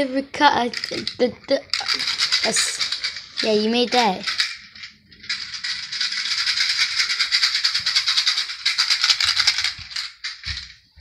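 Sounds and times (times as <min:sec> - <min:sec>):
maraca shaken fast: 0:00.7 - 0:10.7.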